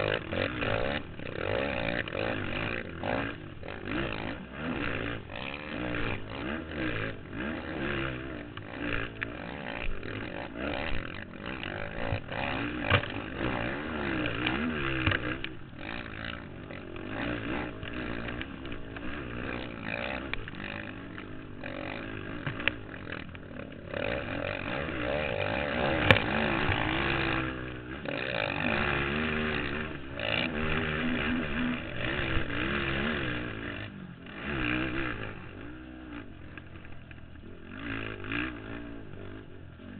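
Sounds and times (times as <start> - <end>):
quad engine revving: 0.0 - 39.9.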